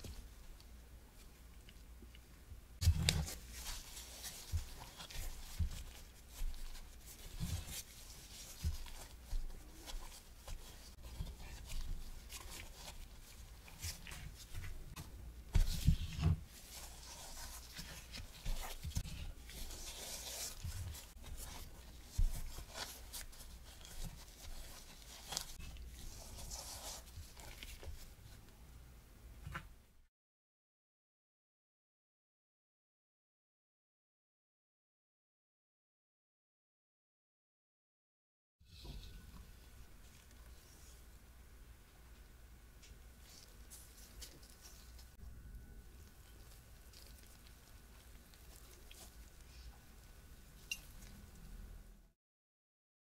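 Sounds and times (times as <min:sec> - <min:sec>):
powder and glove rustling: 0:02.8 - 0:28.3, 0:43.1 - 0:45.2, 0:45.9 - 0:51.4.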